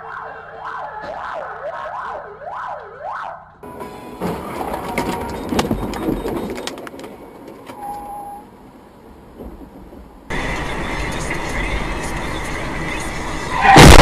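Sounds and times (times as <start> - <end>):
engine and road noise rush: 2.8 - 14.0
vehicle crash impacts: 13.6 - 14.0.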